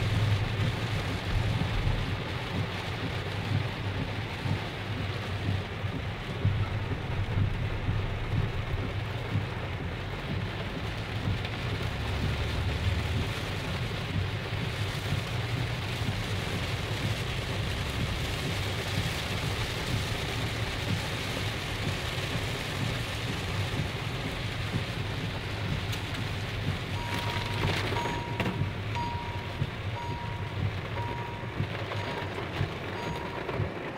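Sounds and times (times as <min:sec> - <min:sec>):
heavy rain on car roof: 0:00.0 - 0:33.9
beeper sounding: 0:27.0 - 0:32.4.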